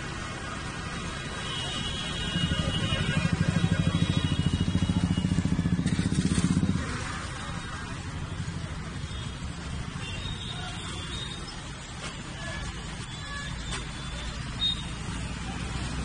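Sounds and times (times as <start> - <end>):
vehicle engine drone: 2.3 - 9.0.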